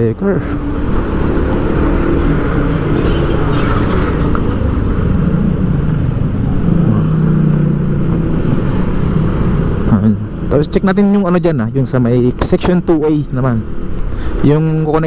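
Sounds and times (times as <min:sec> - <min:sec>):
car traffic: 0:00.0 - 0:15.0
motorcycle engine rumbling: 0:00.0 - 0:15.0.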